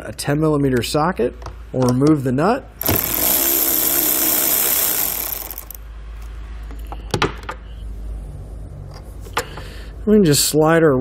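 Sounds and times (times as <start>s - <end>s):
electric ratchet spinning a nut: 2.8s - 5.8s.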